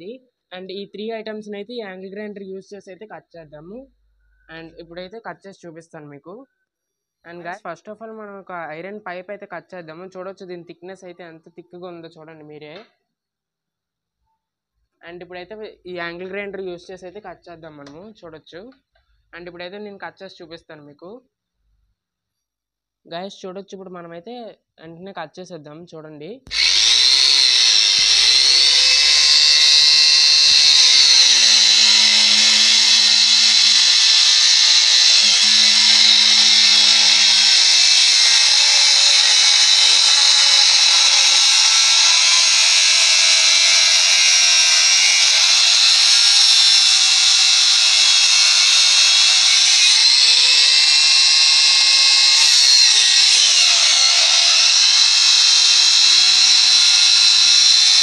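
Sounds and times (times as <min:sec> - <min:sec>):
angle grinder cutting metal pipe: 0:26.5 - 0:58.0.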